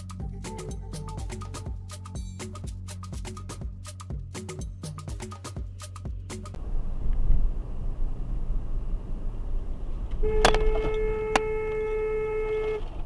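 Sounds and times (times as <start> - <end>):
car road and engine rumble: 6.5 - 13.0
car horn held: 10.2 - 13.0.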